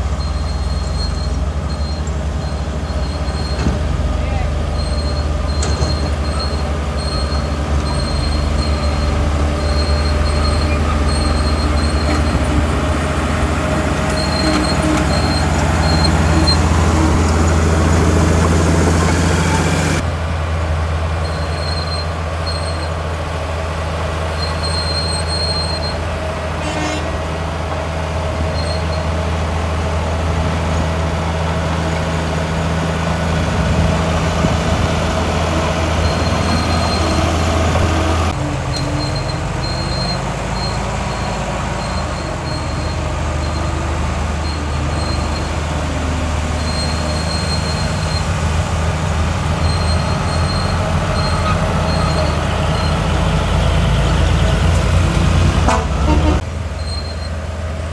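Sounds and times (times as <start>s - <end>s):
bulldozer diesel engine droning: 0.0s - 57.9s
high squeaks: 4.8s - 12.6s, 14.0s - 20.0s, 35.5s - 45.8s, 46.4s - 48.4s, 49.6s - 53.3s.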